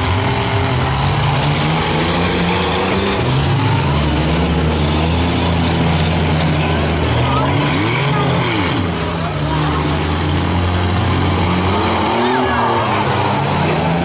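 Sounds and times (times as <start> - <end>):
car engines revving: 0.0 - 14.0
steady background noise: 0.0 - 14.0.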